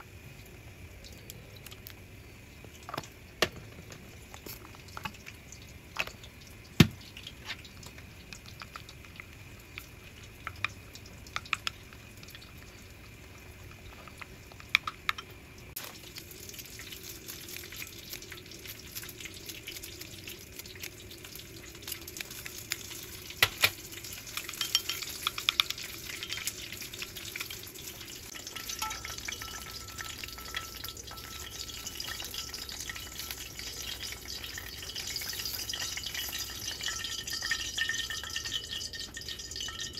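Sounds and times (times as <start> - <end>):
hot oil sizzling and crackling: 0.0 - 39.9
utensils tapping glass bowl: 24.3 - 26.5, 28.4 - 34.1, 34.9 - 39.9.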